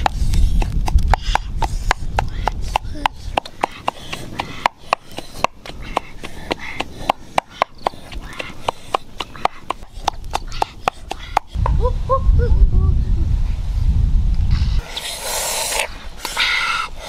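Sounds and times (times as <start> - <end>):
low rumble: 11.6 - 14.8.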